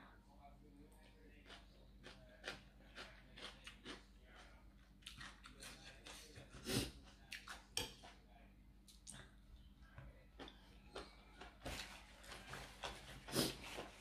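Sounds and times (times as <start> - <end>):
person chewing crunchy food: 1.3 - 8.2, 10.4 - 14.0.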